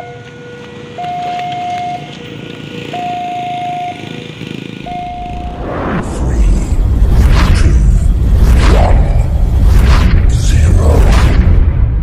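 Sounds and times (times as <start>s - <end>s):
level crossing warning alarm: 0.0s - 4.2s, 4.8s - 5.6s.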